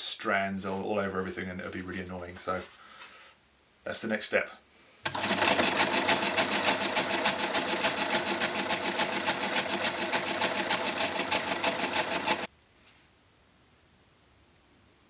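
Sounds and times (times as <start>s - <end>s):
sewing machine clatter: 5.1s - 12.5s.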